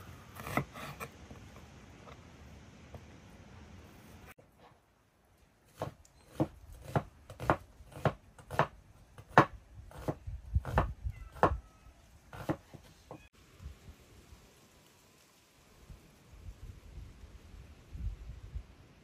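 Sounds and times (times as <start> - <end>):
knife chopping on cutting board: 5.7 - 11.6, 12.4 - 12.9.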